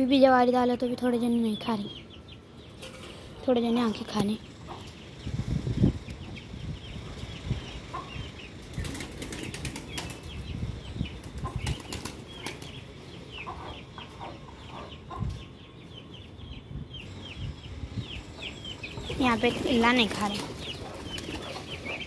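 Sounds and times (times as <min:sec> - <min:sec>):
beaks pecking the ground: 0:06.0 - 0:15.2, 0:18.1 - 0:22.0
wing flutters: 0:08.6 - 0:10.4, 0:11.2 - 0:12.8.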